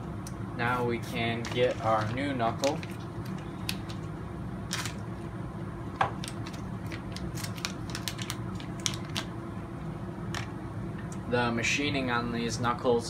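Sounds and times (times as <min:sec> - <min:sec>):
steady low hum: 0:00.0 - 0:13.0
plastic bag crinkling: 0:01.3 - 0:04.0, 0:04.7 - 0:05.0, 0:06.2 - 0:09.3.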